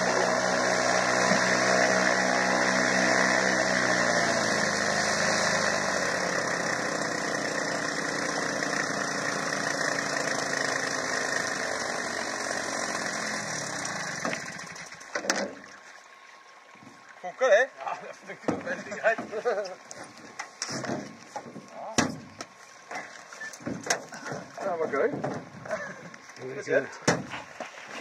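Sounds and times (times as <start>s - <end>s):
boat engine running: 0.0s - 15.7s.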